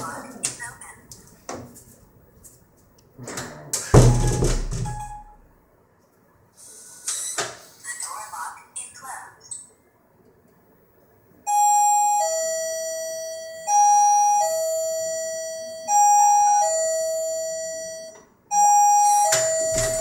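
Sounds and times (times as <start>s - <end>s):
two-tone doorbell chime: 11.5s - 20.0s.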